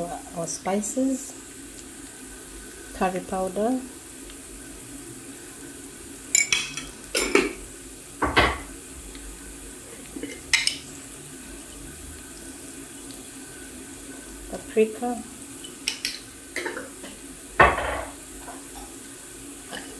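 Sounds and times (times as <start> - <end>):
kitchenware clinking and knocking: 8.2 - 8.7, 17.6 - 18.6.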